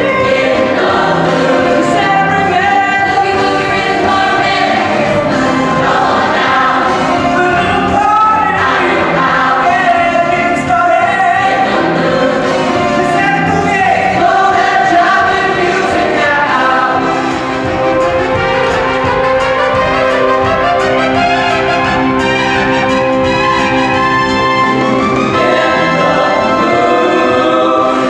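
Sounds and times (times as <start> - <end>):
men singing into microphones: 0.0 - 17.4, 25.3 - 28.0
group of voices singing: 0.0 - 18.7, 25.0 - 28.0
swing backing music: 0.0 - 28.0.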